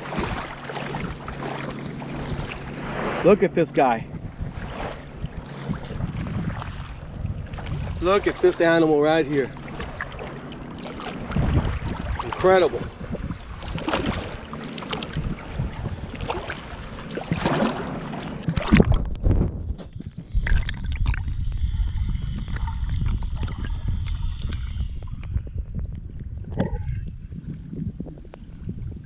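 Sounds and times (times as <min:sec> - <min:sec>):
fish splashing in water: 0:00.0 - 0:03.2, 0:09.5 - 0:12.5, 0:13.4 - 0:19.1
small waves lapping: 0:00.0 - 0:19.2
muffled underwater gurgling: 0:00.0 - 0:29.0.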